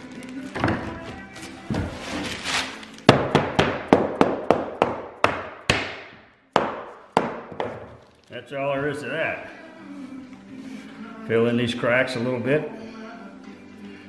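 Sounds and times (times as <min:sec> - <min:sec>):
mallet tapping wood: 0:03.1 - 0:07.8.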